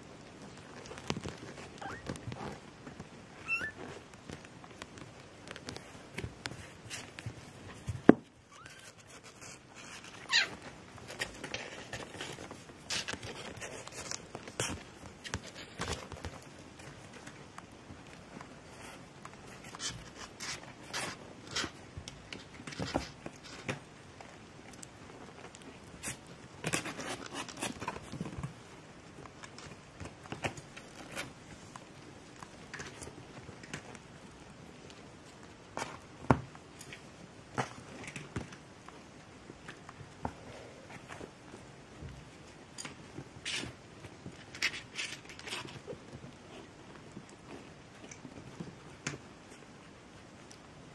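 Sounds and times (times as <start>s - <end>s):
light scratching and rustling: 0.2s - 49.7s
short falling squeak: 3.5s - 3.8s.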